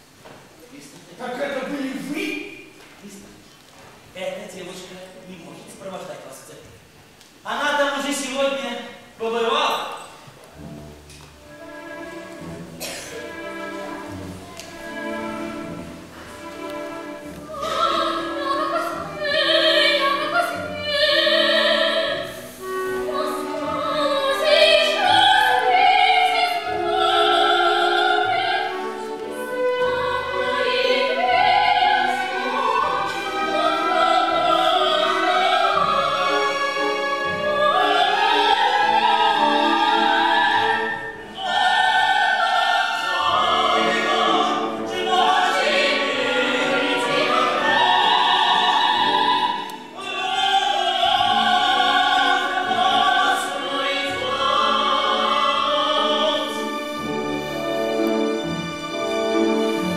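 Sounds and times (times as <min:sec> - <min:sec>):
orchestra with strings: 0:07.4 - 0:59.9
operatic singing: 0:16.8 - 0:59.9.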